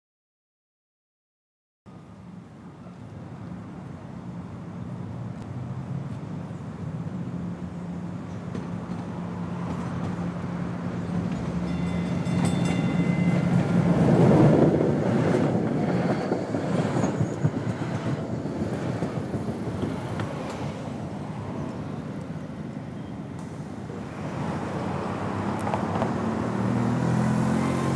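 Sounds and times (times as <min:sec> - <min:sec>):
large vehicle passing: 0:17.9 - 0:27.9.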